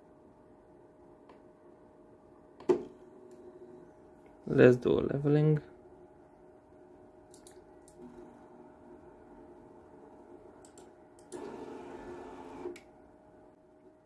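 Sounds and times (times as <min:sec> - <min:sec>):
light clicks: 0:07.3 - 0:08.0
printer motors and fans whining: 0:07.4 - 0:13.0
printer motor travel: 0:11.3 - 0:12.8.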